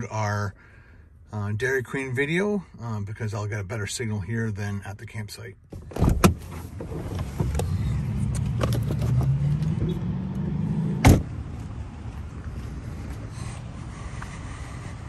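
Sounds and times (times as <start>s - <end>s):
car door slamming: 5.7s - 7.7s, 11.0s - 11.3s.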